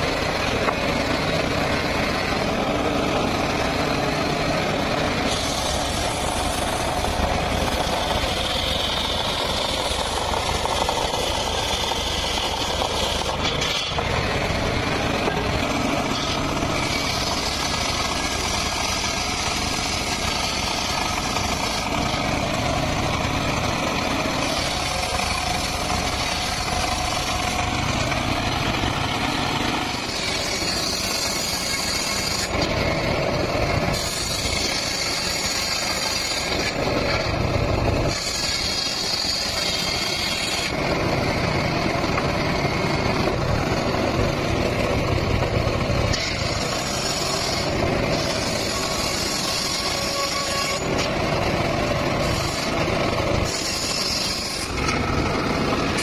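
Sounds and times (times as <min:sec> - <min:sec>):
circular saw ripping wood: 0:01.7 - 0:28.5, 0:29.1 - 0:37.3, 0:38.0 - 0:43.0, 0:46.1 - 0:56.0.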